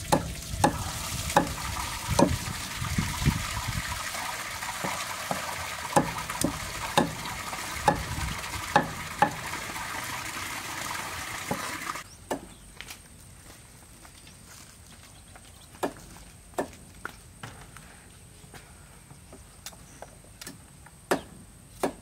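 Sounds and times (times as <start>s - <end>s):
cleaver chopping on wooden block: 0.1s - 0.8s, 1.4s - 1.6s, 6.0s - 7.2s, 8.7s - 9.4s, 21.1s - 22.0s.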